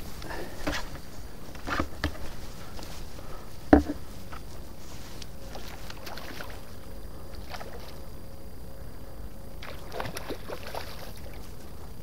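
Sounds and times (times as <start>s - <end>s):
fish splashing at water surface: 5.5s - 6.8s, 9.6s - 11.4s.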